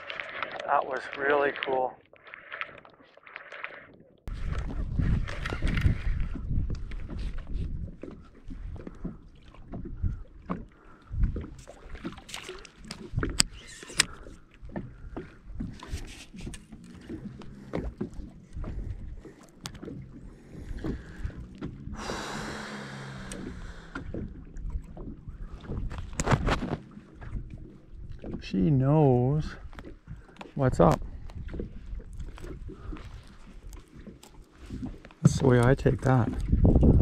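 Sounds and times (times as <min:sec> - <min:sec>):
waves lapping against boat hull: 0:00.0 - 0:37.0
fishing reel clicks and knocks: 0:13.3 - 0:14.2.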